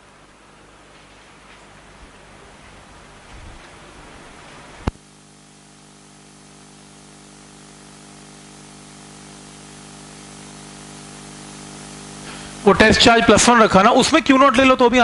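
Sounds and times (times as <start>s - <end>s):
electrical hum: 0.0s - 15.0s
steady background hiss: 0.0s - 15.0s.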